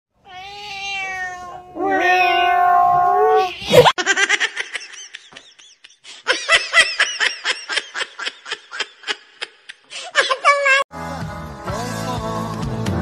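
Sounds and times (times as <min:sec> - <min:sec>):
person laughing hard: 0:03.6 - 0:10.5.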